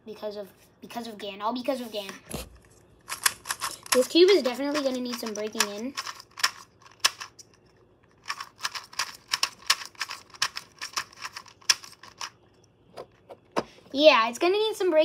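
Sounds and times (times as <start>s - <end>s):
plastic puzzle cube clicking: 3.1s - 7.5s, 8.2s - 12.3s.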